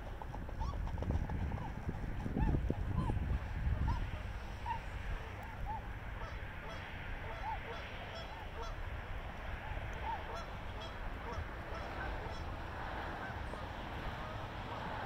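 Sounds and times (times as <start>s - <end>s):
wind on microphone: 0.0s - 6.4s
swans honking: 0.0s - 15.0s.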